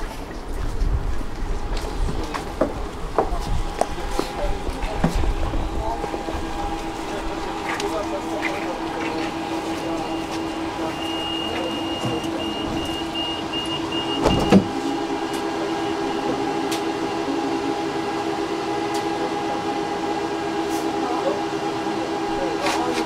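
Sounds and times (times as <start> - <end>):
tram electrical hum: 0.0 - 23.0
high electronic beep: 10.0 - 16.0
loud thud: 14.2 - 14.7.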